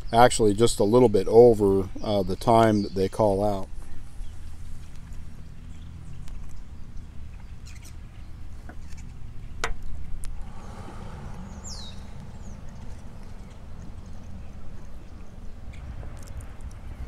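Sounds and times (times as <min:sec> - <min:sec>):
low background rumble: 0:05.2 - 0:17.0
falling bird whistle: 0:10.5 - 0:15.3.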